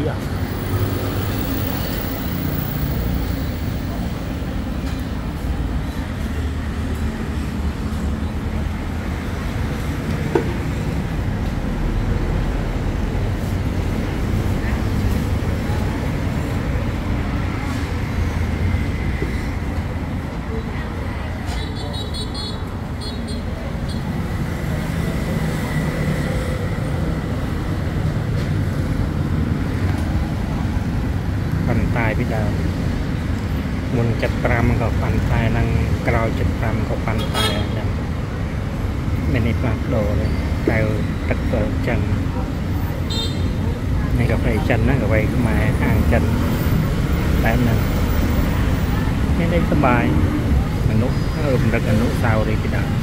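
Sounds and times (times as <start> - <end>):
street traffic rumble: 0.0 - 53.0.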